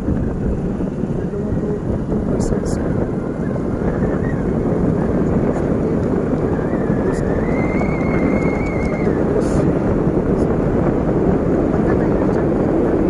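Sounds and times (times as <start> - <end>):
scooter engine running: 0.0 - 13.0
wind on microphone: 0.0 - 13.0
high wavering whistle: 6.6 - 9.2.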